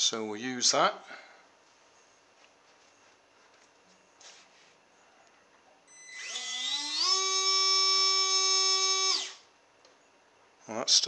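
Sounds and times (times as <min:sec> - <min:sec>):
faint handling rustle: 0:01.5 - 0:05.5
small electric motor whine: 0:05.9 - 0:09.5.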